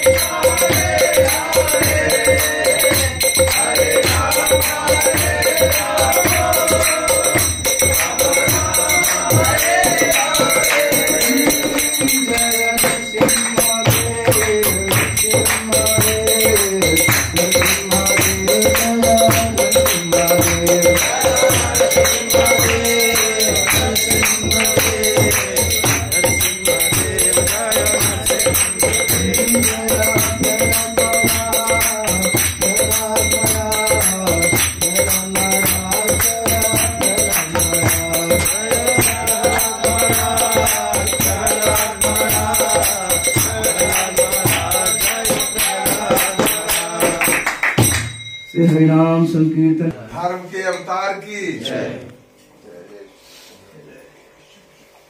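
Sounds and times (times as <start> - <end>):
group singing in chorus: 0.0 - 48.0, 51.6 - 52.2
rhythmic hand clapping: 0.0 - 48.5
ringing metal percussion: 0.0 - 49.4.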